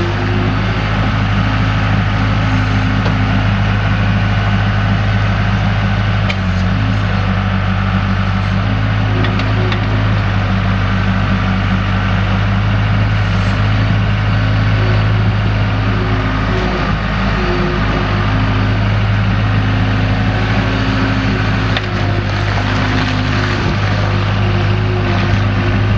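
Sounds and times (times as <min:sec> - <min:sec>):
diesel engine running: 0:00.0 - 0:25.9.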